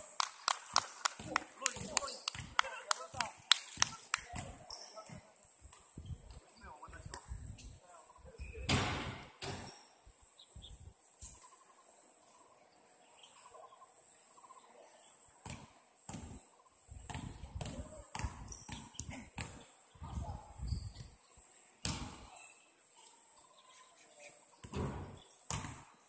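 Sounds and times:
soccer ball kicks: 0:21.8 - 0:22.3.

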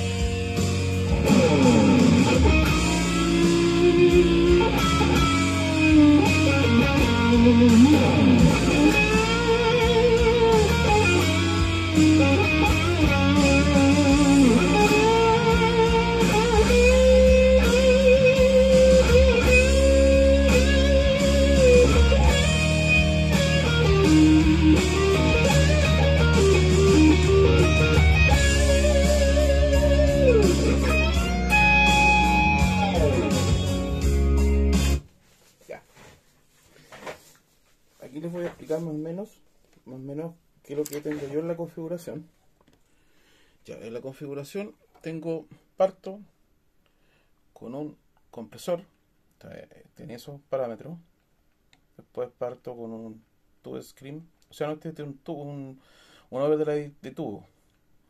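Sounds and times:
overdriven electric guitar solo: 0:00.0 - 0:35.0
rock backing track: 0:00.0 - 0:35.1.

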